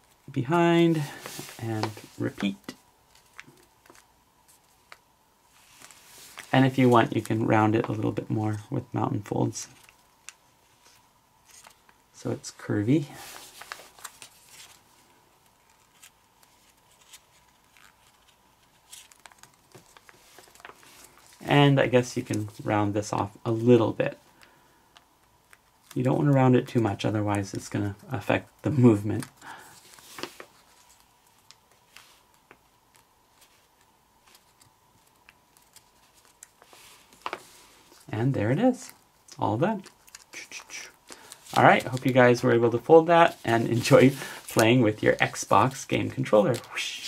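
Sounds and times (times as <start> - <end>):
paper being folded: 0.0 - 23.9, 25.2 - 47.0
paper crinkling and clicking: 15.4 - 21.4, 29.0 - 38.1, 38.8 - 42.5, 43.2 - 47.0.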